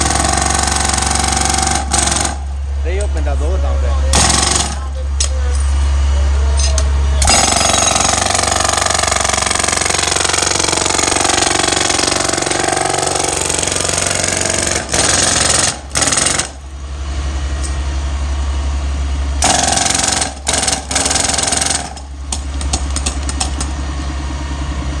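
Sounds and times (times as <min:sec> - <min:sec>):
power hammer hammering rapidly: 0:00.0 - 0:03.1, 0:04.1 - 0:04.9, 0:07.2 - 0:16.6, 0:19.4 - 0:23.7.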